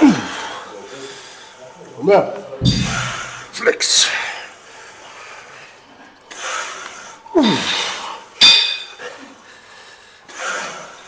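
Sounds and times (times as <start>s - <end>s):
metal bar and weight plates clanking: 2.6s - 3.5s, 8.4s - 9.0s.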